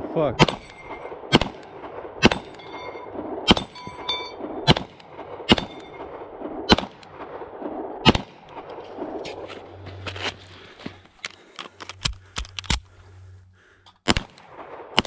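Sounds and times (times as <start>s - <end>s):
pistol shots: 0.4s - 2.8s, 3.4s - 7.4s, 8.0s - 8.7s, 14.0s - 15.0s
steel targets ringing: 2.2s - 4.5s, 5.5s - 6.1s.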